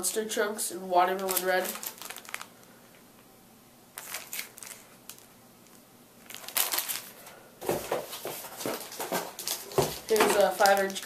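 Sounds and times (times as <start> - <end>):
plastic bag crinkling: 1.2 - 2.7, 3.9 - 11.0.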